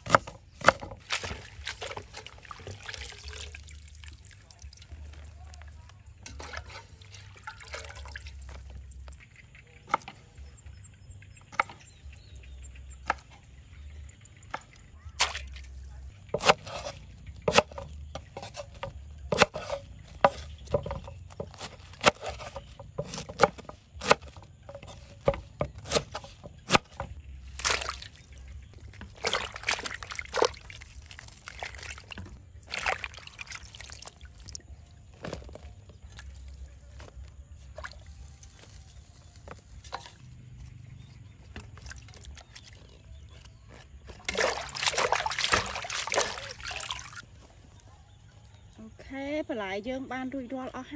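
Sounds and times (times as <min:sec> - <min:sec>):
water sloshing and splashing: 0:00.0 - 0:10.7, 0:11.3 - 0:47.3
knife chopping on wooden board: 0:16.4 - 0:27.1.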